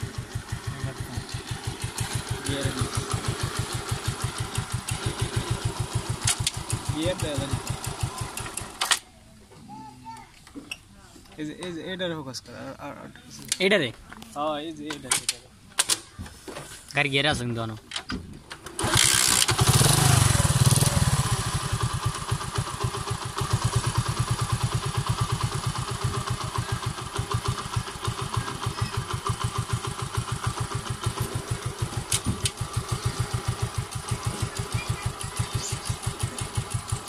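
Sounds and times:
motorcycle engine revving and idling: 0:00.0 - 0:08.9, 0:18.7 - 0:37.0.

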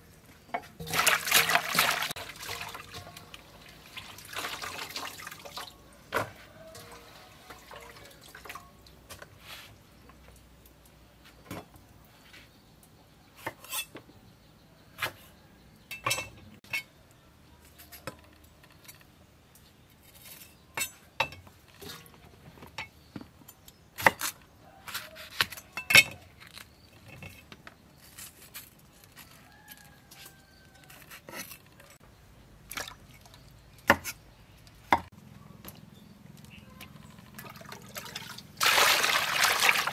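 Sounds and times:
water splashing: 0:00.8 - 0:05.8, 0:37.3 - 0:39.9.

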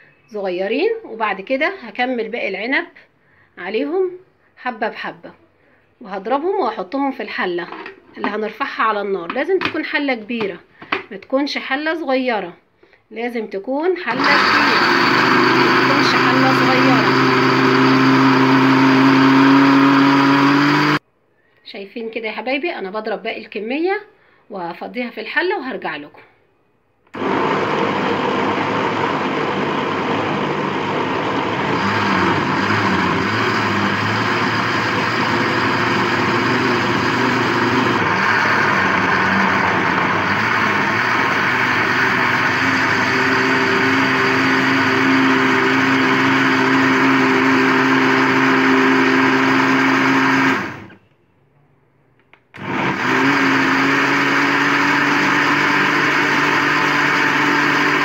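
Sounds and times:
electric blender running: 0:14.1 - 0:21.0, 0:27.2 - 0:51.0, 0:52.6 - 0:58.0.

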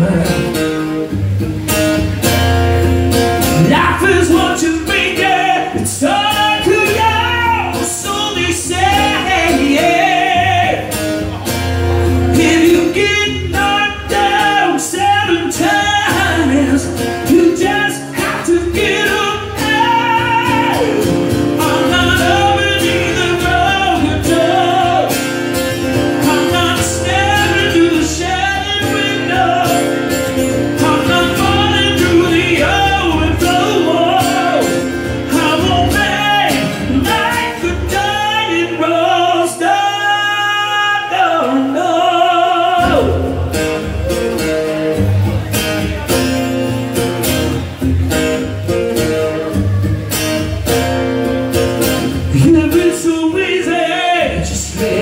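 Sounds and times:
man singing a ballad: 0:00.0 - 0:00.8, 0:03.5 - 0:11.1, 0:12.0 - 0:43.8, 0:52.2 - 0:55.0
acoustic guitar strumming: 0:00.0 - 0:55.0.

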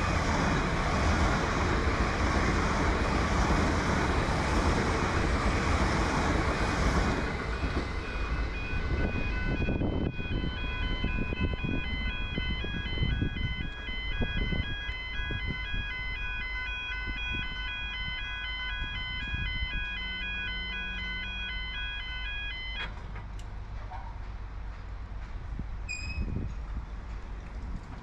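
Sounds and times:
wind: 0:00.0 - 0:28.0
level crossing alarm two-tone: 0:07.6 - 0:22.9
traffic rumble: 0:17.1 - 0:26.0.

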